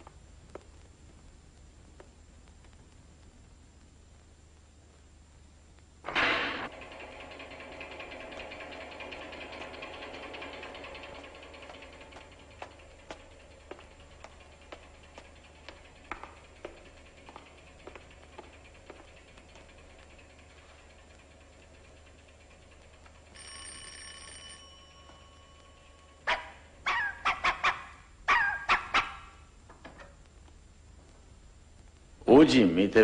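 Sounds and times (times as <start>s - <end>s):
faint footsteps: 0.0s - 5.1s, 11.5s - 21.3s, 29.7s - 32.3s
doorbell ringing: 23.3s - 26.2s
dog barking: 26.3s - 29.3s.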